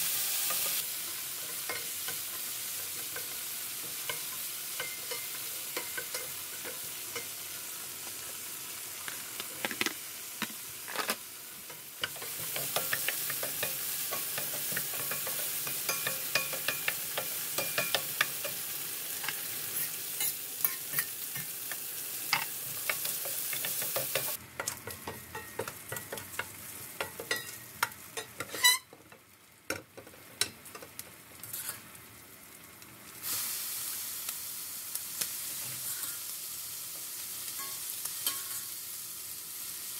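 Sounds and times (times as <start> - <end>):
food sizzling in a pan: 0.0 - 39.9
utensil scraping a pan: 28.2 - 28.9, 31.4 - 31.8.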